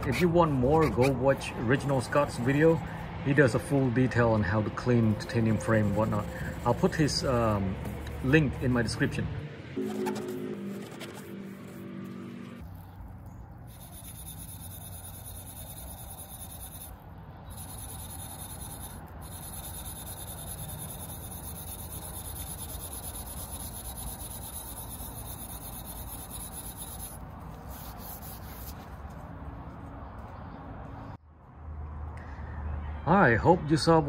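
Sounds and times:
abrasive pad scrubbing metal tube: 4.7s - 9.2s, 9.8s - 11.9s, 17.6s - 28.8s.

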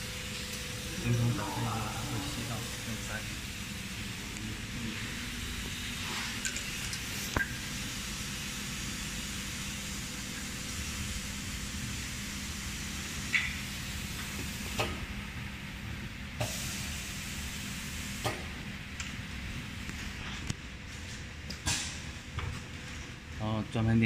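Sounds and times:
vacuum air hiss: 0.0s - 18.6s
low machine hum: 0.0s - 24.0s.

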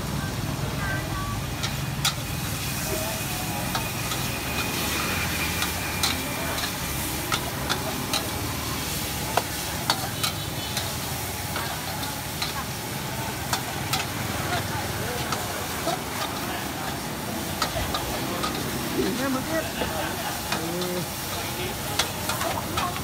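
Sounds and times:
food sizzling in a wok: 0.0s - 23.0s
metal utensil scraping a wok: 1.6s - 23.0s.

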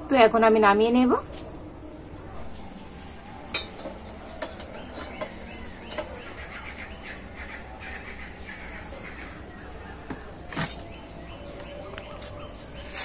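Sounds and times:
faint birds chirping: 0.0s - 13.0s
tongs clinking on steel bowls: 3.5s - 6.2s.

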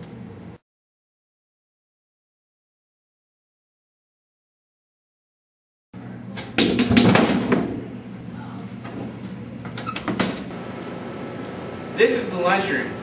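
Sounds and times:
vending machine hum: 0.0s - 0.6s, 6.0s - 13.0s.

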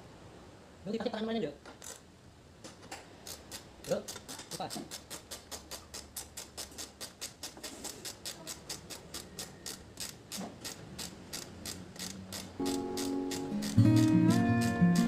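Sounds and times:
ratchet wrench clicking: 3.2s - 15.0s.

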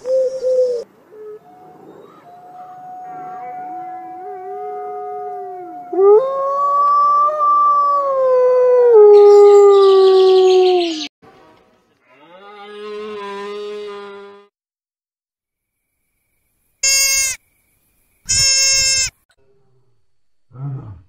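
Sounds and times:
wolves howling: 0.8s - 11.0s.

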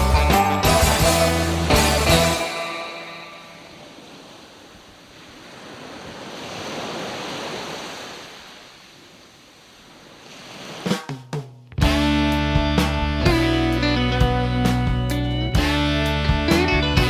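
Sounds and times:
rushing noise like surf: 0.8s - 11.2s.

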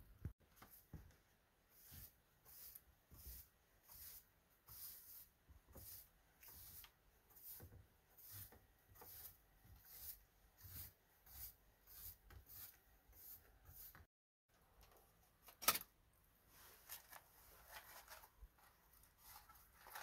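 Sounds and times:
broom sweeping wooden deck: 1.7s - 14.1s.

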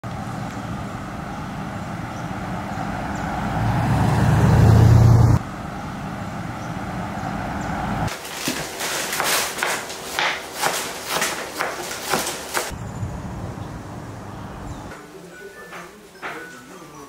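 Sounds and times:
car engine and road noise: 0.0s - 8.5s, 12.3s - 15.0s.

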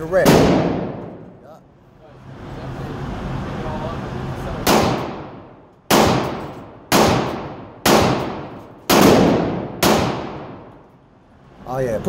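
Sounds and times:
pistol shots echoing indoors: 0.2s - 1.3s, 4.6s - 10.8s.

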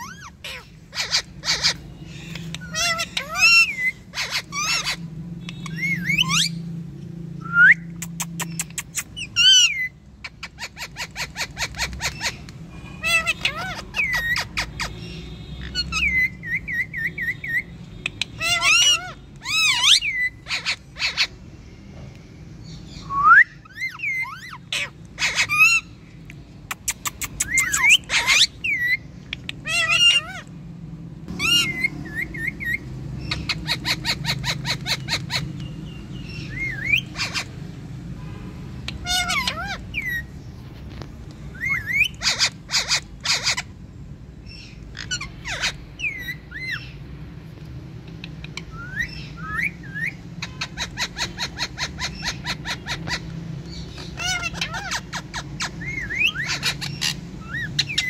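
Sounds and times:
parrot screeches: 0.0s - 6.6s, 13.0s - 14.9s, 18.3s - 21.3s, 23.6s - 26.0s, 27.0s - 29.0s, 29.6s - 30.5s, 38.9s - 40.3s, 41.5s - 43.7s, 44.9s - 46.9s, 48.7s - 53.3s, 54.0s - 58.0s
parrots calling: 0.0s - 58.0s.

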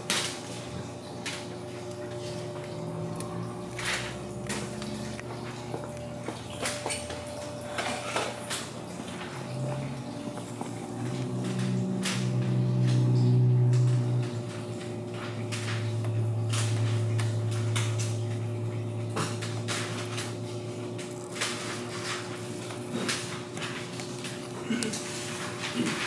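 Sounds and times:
steady low hum: 0.2s - 26.0s
protective film crackling as peeled: 19.2s - 26.0s.

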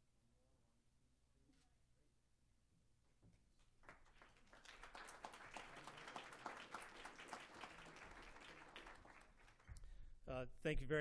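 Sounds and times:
audience applause: 3.8s - 9.7s.

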